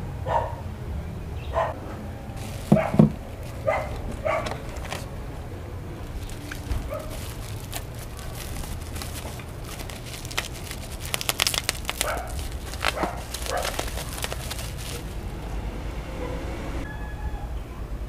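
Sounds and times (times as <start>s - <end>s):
plastic packaging crinkling: 2.4s - 5.1s, 6.0s - 15.4s.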